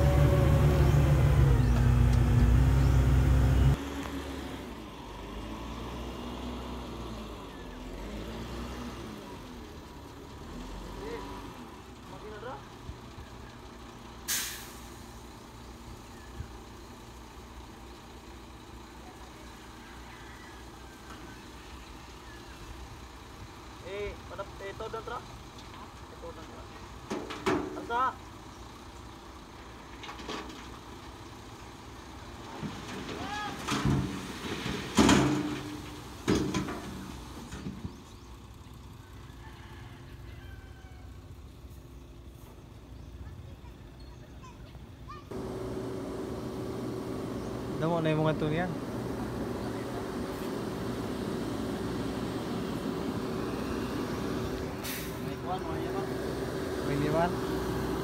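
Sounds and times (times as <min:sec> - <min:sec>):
diesel engine idling: 0:00.0 - 0:05.8, 0:09.0 - 0:27.1, 0:44.8 - 0:58.0
short hiss: 0:14.3 - 0:15.1, 0:54.8 - 0:55.2.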